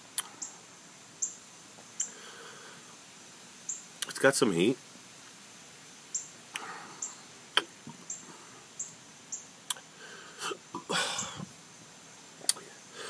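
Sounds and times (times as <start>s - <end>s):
man breathing: 2.0s - 3.0s, 6.5s - 7.4s, 9.9s - 11.6s, 12.7s - 13.0s.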